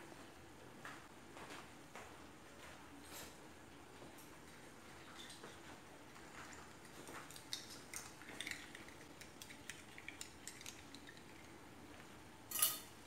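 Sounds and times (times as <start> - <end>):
spoon clinking in a bowl: 12.5 - 12.9.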